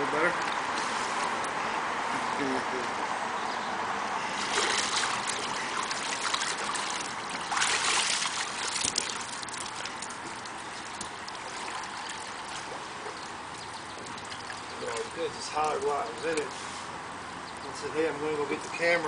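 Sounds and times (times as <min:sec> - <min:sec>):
water trickling and splashing: 0:00.0 - 0:01.8, 0:04.1 - 0:17.9
water streaming off swimmer: 0:04.2 - 0:17.0.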